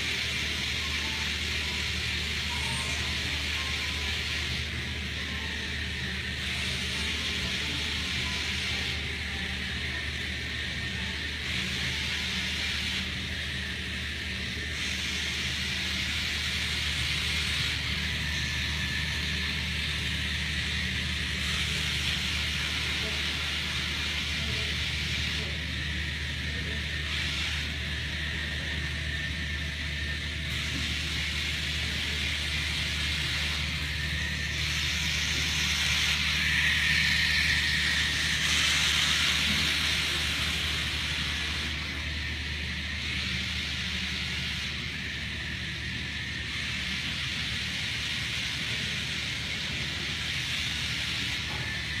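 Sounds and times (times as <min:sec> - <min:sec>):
small motors whirring: 0:00.0 - 0:52.0
steady low hum: 0:00.0 - 0:52.0.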